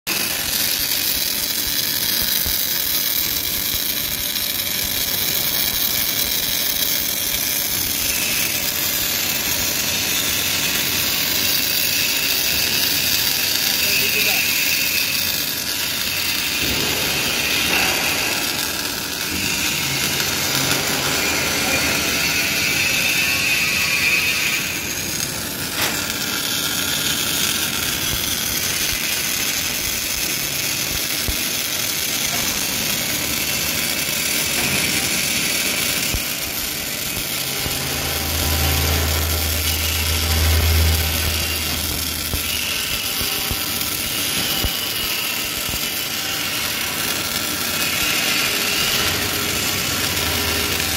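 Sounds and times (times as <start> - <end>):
welding arc crackling hiss: 0.1 - 50.9
low hum: 37.1 - 43.8.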